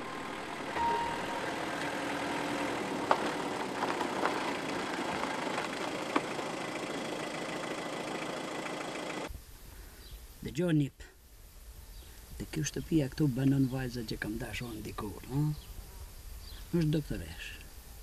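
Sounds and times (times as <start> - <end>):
car engine running: 0.0 - 9.3.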